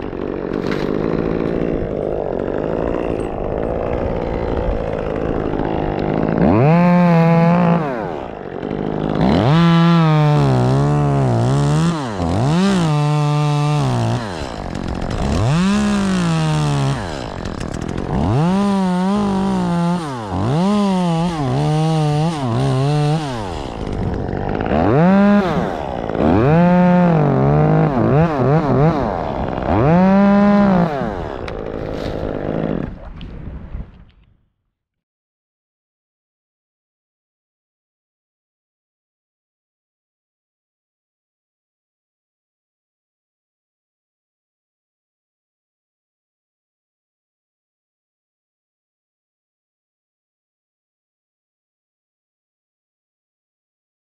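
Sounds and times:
chainsaw revving: 0.0 - 33.0.

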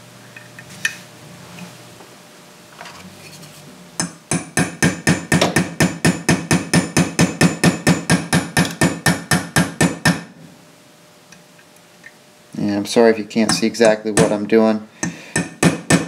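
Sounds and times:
hammer tapping metal punch: 4.0 - 10.3, 13.4 - 16.0.

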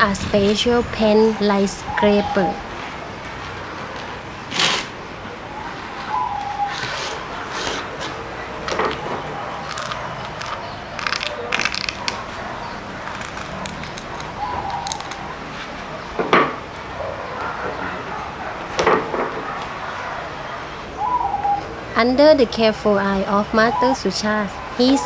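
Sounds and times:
scraper scratching hide: 4.5 - 5.0, 6.7 - 8.2.

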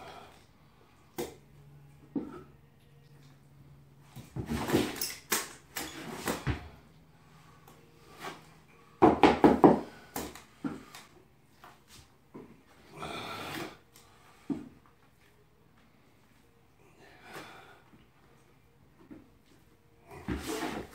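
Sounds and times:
trowel scraping floor compound: 20.2 - 20.9.

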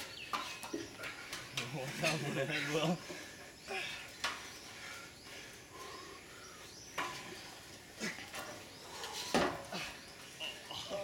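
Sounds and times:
faint bird chirps: 3.6 - 11.0.

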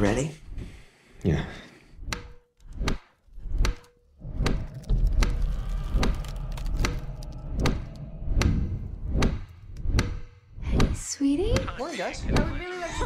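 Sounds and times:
low rumble: 4.1 - 11.5.

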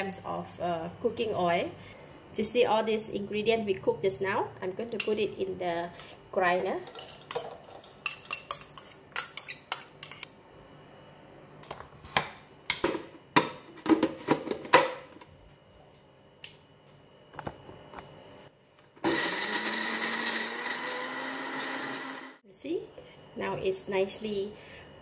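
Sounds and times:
metal spoon clinking on glass: 8.1 - 10.3
blender grinding: 19.0 - 22.4.

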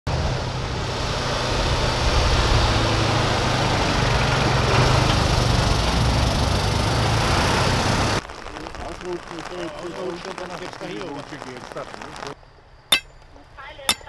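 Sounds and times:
truck engines droning: 0.1 - 8.2
tyre and road rush: 0.1 - 8.2.

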